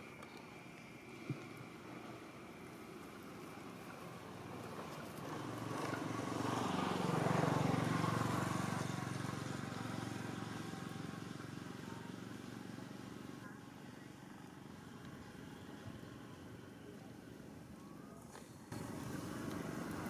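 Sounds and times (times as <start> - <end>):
vehicle engine passing by: 4.5 - 13.3.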